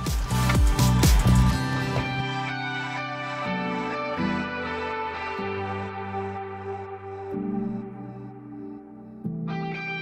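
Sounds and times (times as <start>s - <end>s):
electronic beat with bass drum: 0.0s - 2.2s.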